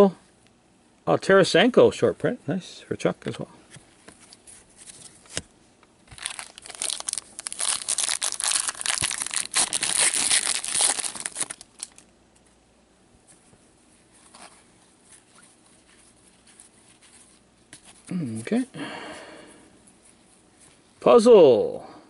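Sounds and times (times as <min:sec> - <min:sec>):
foil wrapper tearing and crinkling: 0:06.1 - 0:12.1.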